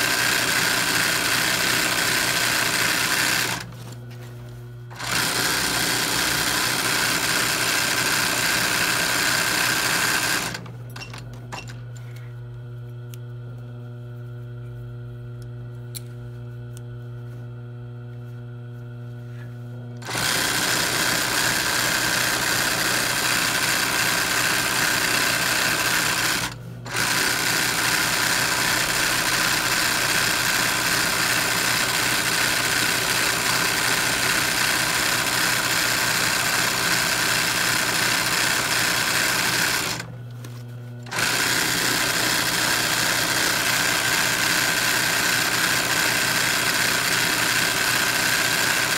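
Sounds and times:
sewing machine needle stitching: 0.0s - 3.7s, 4.9s - 11.8s, 20.0s - 40.1s, 41.0s - 48.9s
sewing machine motor humming: 0.0s - 3.9s, 4.9s - 11.8s, 19.9s - 48.9s.

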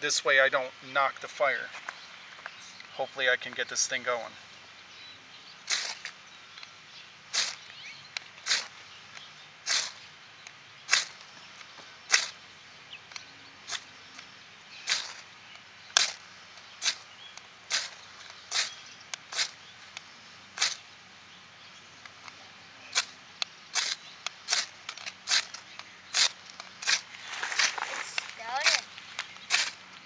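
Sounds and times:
flint rod scraping knife blade: 5.7s - 6.2s, 7.3s - 7.7s, 8.4s - 10.1s, 10.9s - 11.3s, 12.1s - 12.4s, 13.1s - 16.2s, 16.8s - 20.0s, 20.6s - 20.8s, 22.8s - 29.9s.

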